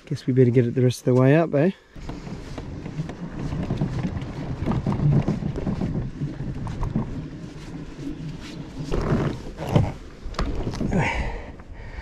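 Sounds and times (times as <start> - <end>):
boat hull scraping on sand: 2.0 - 10.9.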